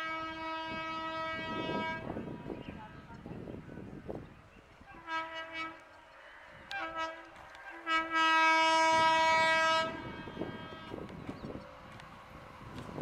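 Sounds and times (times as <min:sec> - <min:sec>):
train horn blasts: 0:00.0 - 0:02.5, 0:04.9 - 0:05.9, 0:06.7 - 0:11.1.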